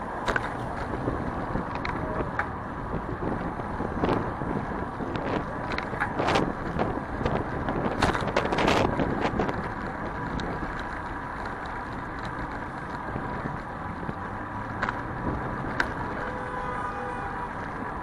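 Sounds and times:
traffic and road noise: 0:00.0 - 0:18.0
wind on microphone: 0:00.6 - 0:11.0, 0:11.9 - 0:18.0.

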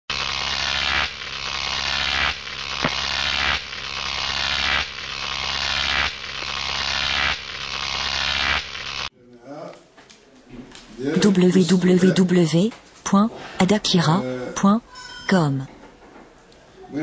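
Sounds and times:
steady electric hum: 0:00.1 - 0:09.1.

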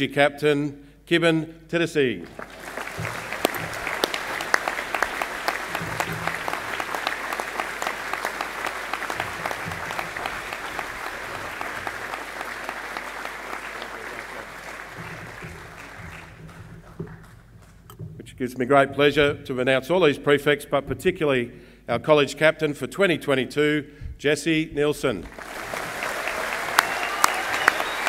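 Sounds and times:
audience applauding: 0:02.2 - 0:17.8, 0:25.2 - 0:28.0.

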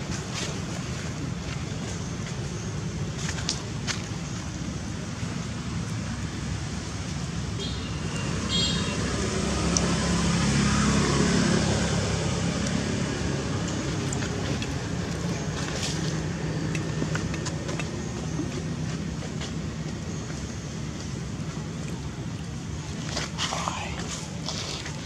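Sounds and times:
traffic rumble: 0:00.0 - 0:25.0
vehicle passing: 0:08.2 - 0:19.3.

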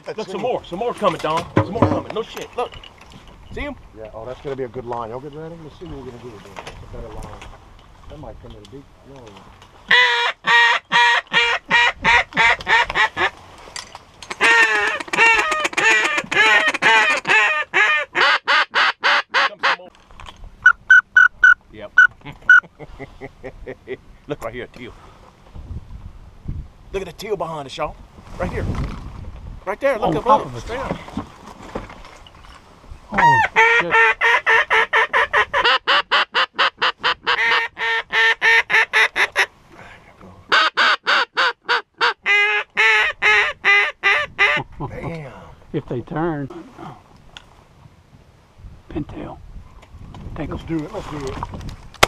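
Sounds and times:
duck call quacks: 0:09.9 - 0:13.3, 0:14.3 - 0:19.8, 0:33.2 - 0:39.5, 0:40.5 - 0:44.7.

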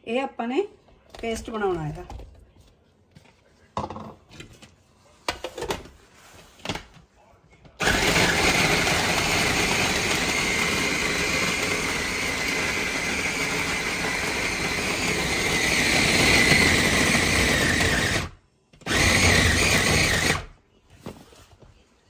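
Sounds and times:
food chopper motor whining: 0:07.8 - 0:20.5.

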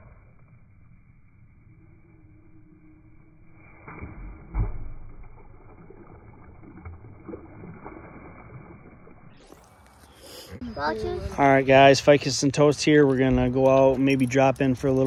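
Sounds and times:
magnet splashing into river: 0:03.7 - 0:09.8.

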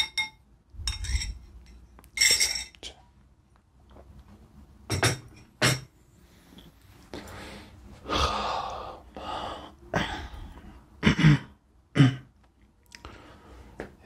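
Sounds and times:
man coughing: 0:11.0 - 0:12.3.

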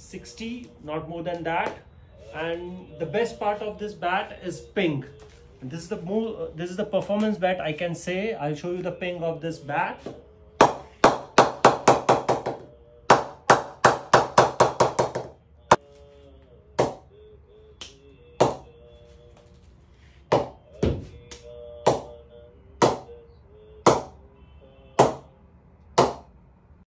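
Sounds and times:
wooden mallet knocking cricket bat: 0:16.8 - 0:17.0, 0:18.4 - 0:18.6, 0:20.3 - 0:21.1, 0:21.9 - 0:22.2, 0:22.8 - 0:23.1, 0:23.9 - 0:24.1, 0:25.0 - 0:25.3, 0:26.0 - 0:26.3.

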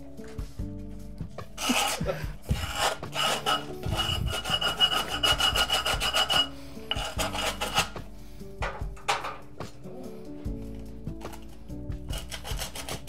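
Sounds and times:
hand tool scraping abrasive sheet: 0:01.6 - 0:08.1, 0:12.1 - 0:13.0.

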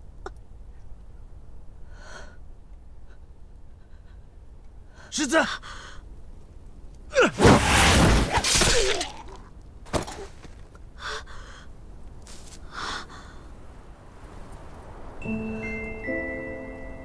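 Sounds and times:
tinkling keyboard music: 0:15.2 - 0:17.0.

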